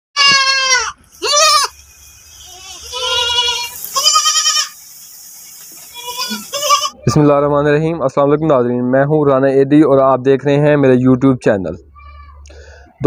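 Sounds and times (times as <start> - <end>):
goats bleating: 0.2 - 1.8, 2.4 - 4.8, 5.8 - 7.0.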